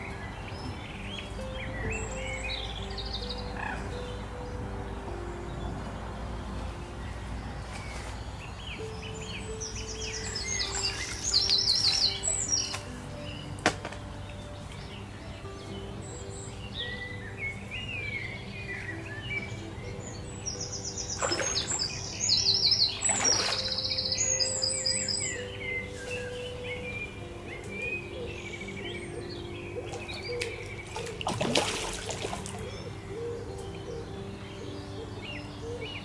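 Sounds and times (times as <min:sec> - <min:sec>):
birds singing and trilling: 0:00.0 - 0:36.0
feeder splashing into water: 0:21.2 - 0:22.0, 0:23.0 - 0:23.8, 0:30.9 - 0:32.6.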